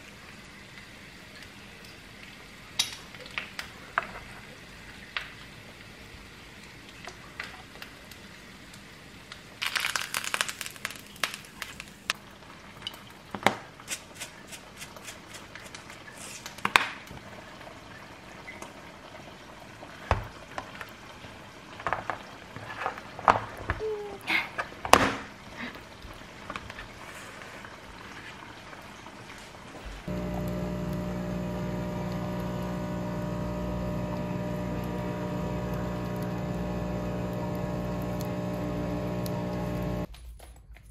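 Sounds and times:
dense crackling: 0:09.6 - 0:12.2, 0:30.1 - 0:40.1
steady machine hum: 0:30.1 - 0:40.1.

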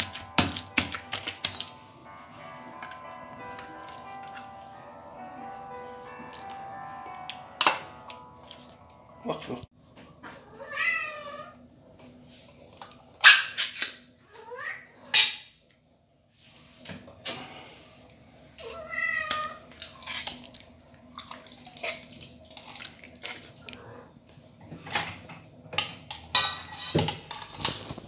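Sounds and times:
cat meowing: 0:10.4 - 0:11.6, 0:18.6 - 0:19.7
spoon scraping steel bowl: 0:19.8 - 0:20.6, 0:26.1 - 0:28.0.

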